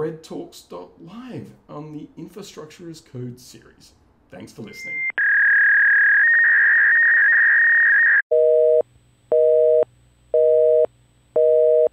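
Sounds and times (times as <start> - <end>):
telephone busy signal: 8.3 - 9.8, 10.4 - 11.9.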